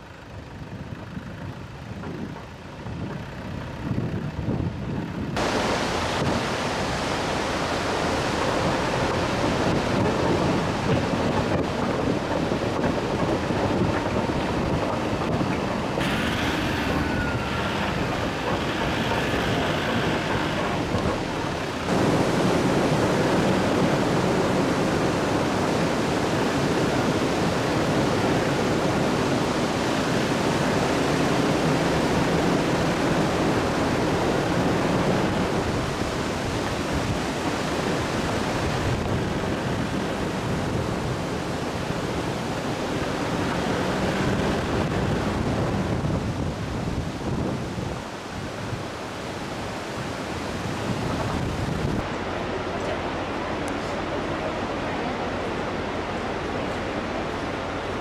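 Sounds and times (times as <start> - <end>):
fast river roaring: 1.1 - 58.0.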